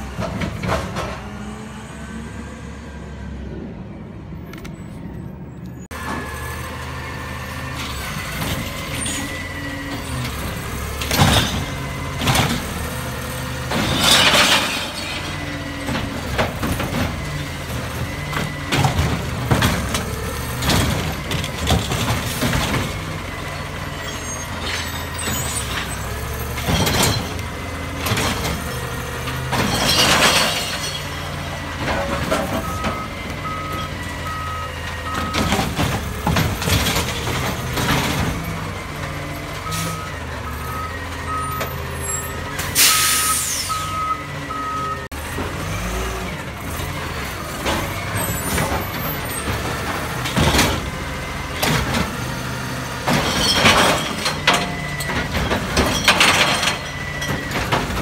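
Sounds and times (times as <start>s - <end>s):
clanks and knocks of carts: 0.0s - 1.6s, 7.4s - 58.0s
garbage truck running: 0.0s - 58.0s.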